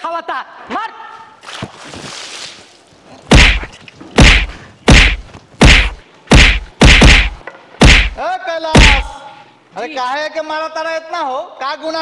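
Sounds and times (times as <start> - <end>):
water splash: 1.4 - 8.2
heavy stick whacks: 3.3 - 8.2, 8.8 - 9.1.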